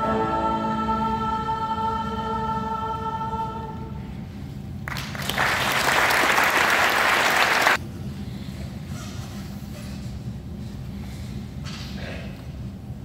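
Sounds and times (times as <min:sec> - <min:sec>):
low hall background: 0:00.0 - 0:13.0
audience applauding: 0:04.9 - 0:07.8.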